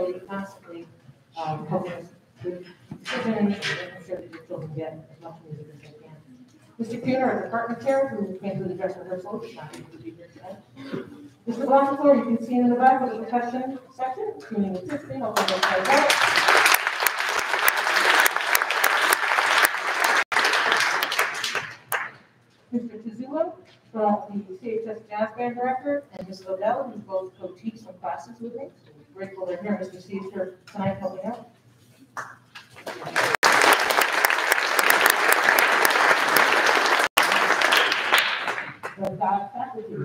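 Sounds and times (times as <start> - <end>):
audience applause: 15.5 - 22.2, 32.8 - 39.0.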